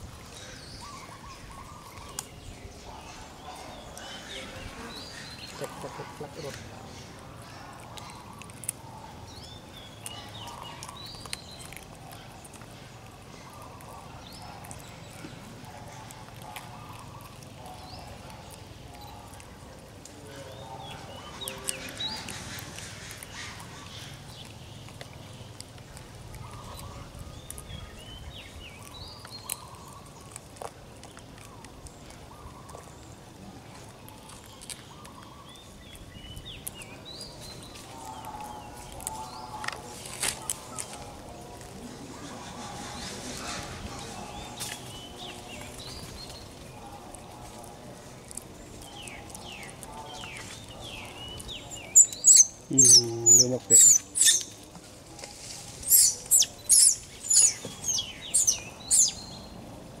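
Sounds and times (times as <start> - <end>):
whistled bird calls: 51.7 - 54.5, 55.8 - 59.4
monkey giving shrill squeals: 52.0 - 54.5, 55.8 - 59.2.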